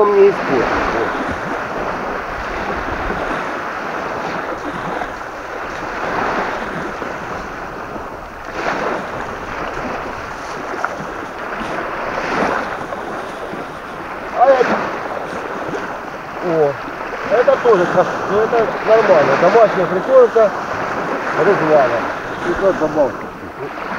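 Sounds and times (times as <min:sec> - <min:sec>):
small waves lapping: 0:00.0 - 0:23.9
strong wind on microphone: 0:00.0 - 0:23.9.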